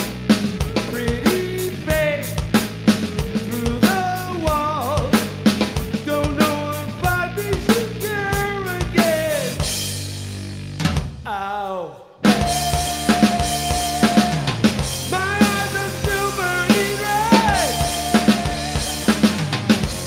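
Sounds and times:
drum kit playing: 0.0s - 11.3s, 12.2s - 20.0s
bass guitar: 0.0s - 11.4s, 12.2s - 20.0s
person singing: 0.6s - 2.4s, 3.2s - 9.6s, 11.3s - 20.0s.

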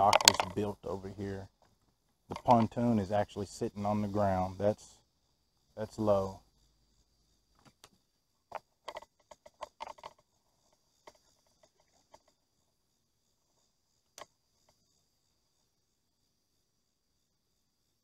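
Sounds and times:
faint clicks and knocks: 0.0s - 0.8s, 1.5s - 2.8s, 7.5s - 12.4s.

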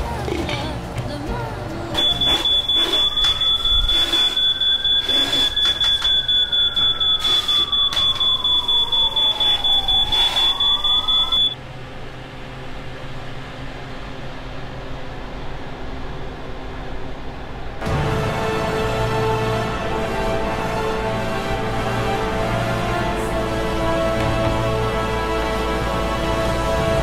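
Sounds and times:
smoke alarm beeping: 2.0s - 11.6s.

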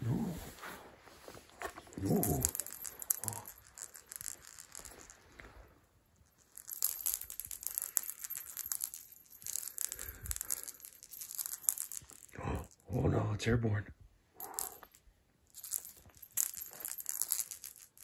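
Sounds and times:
cat toy rattling: 1.7s - 5.6s, 6.2s - 12.8s, 14.4s - 18.0s.

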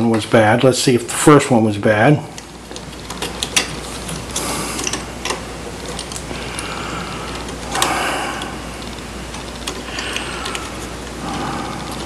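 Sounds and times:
steady low hum: 0.0s - 12.0s
clicks and rustling handling noise: 2.3s - 11.1s.

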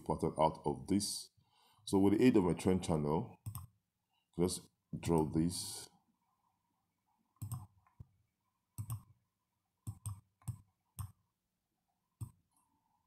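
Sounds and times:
computer mouse clicking: 3.4s - 3.7s, 7.4s - 8.1s, 8.8s - 9.1s, 9.8s - 11.2s.

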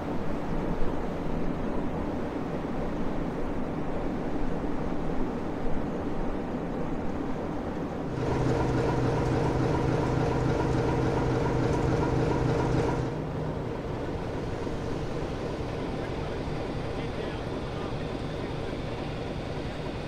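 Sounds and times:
diesel locomotive engine idling: 8.1s - 20.0s.

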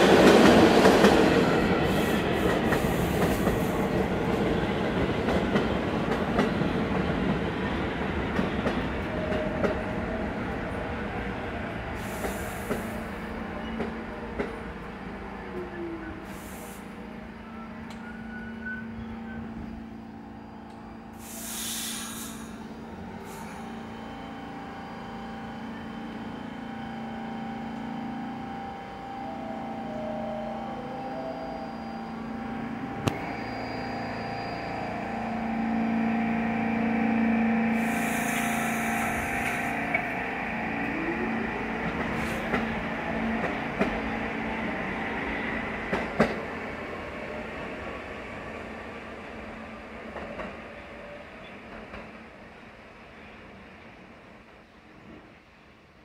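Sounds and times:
train pulling out: 0.0s - 52.8s
train hum: 0.0s - 56.0s
air brakes hissing: 12.0s - 13.2s, 16.2s - 17.0s, 21.1s - 23.9s, 37.7s - 40.0s.

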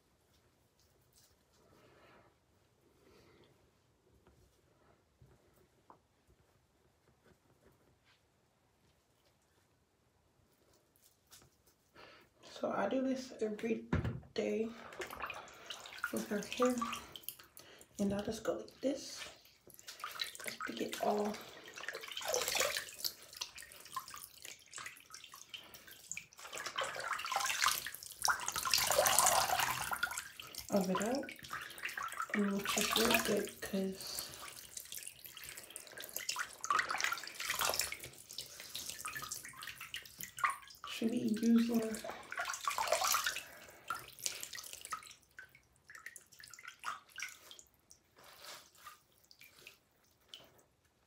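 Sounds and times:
wet hands rubbing hair: 0.0s - 2.8s, 3.7s - 12.0s, 15.0s - 45.3s, 45.9s - 50.4s
water splashing and trickling: 14.4s - 50.8s.

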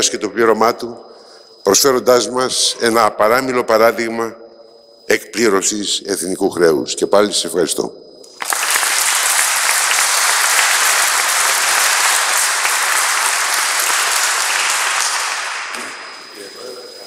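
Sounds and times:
audience applauding: 8.3s - 16.6s.

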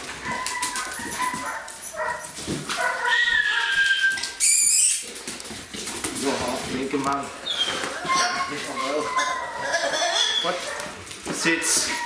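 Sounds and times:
dog whining and yipping: 0.2s - 2.2s, 2.8s - 5.1s, 7.4s - 10.8s, 11.8s - 12.0s.

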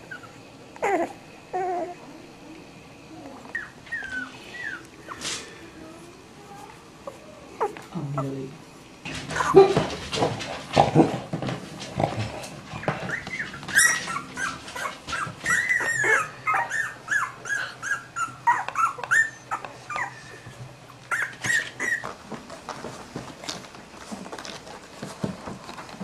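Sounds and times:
dog whimpering: 0.0s - 8.5s, 12.8s - 22.2s.

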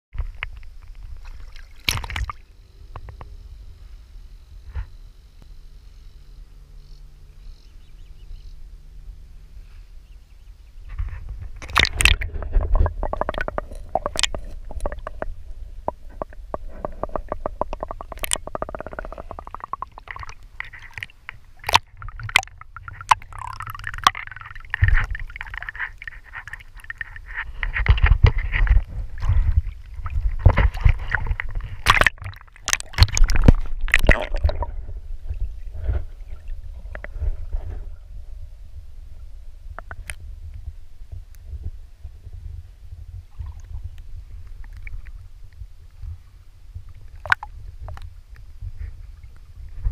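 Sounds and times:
water splashes: 0.2s - 2.5s, 10.9s - 37.8s
water sloshing and gurgling: 0.2s - 3.2s, 10.8s - 49.9s
sharp clicks: 15.9s - 25.7s.

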